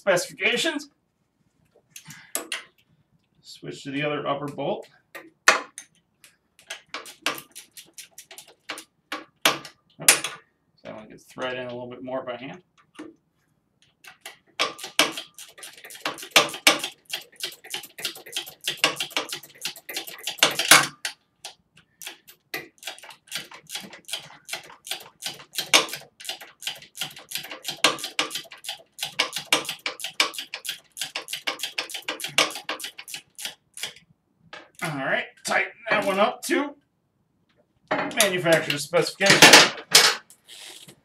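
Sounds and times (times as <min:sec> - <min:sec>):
ratchet clicking: 0:14.6 - 0:34.0.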